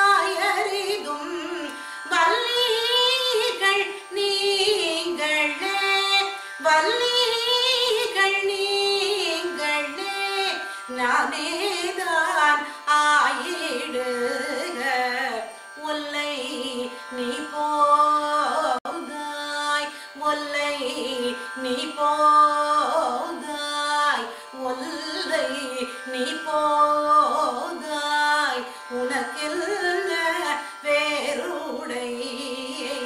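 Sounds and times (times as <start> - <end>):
woman singing a devotional hymn: 0.0 - 33.0.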